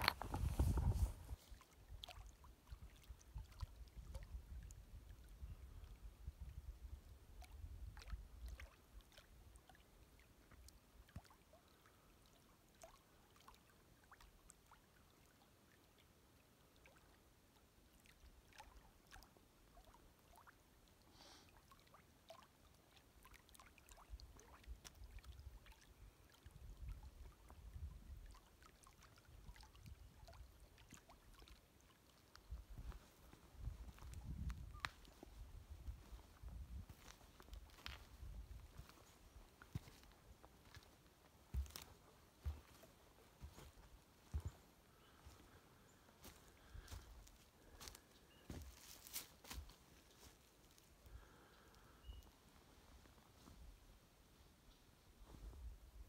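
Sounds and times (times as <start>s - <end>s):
wind rumbling on microphone: 0.0s - 1.4s, 32.5s - 39.1s.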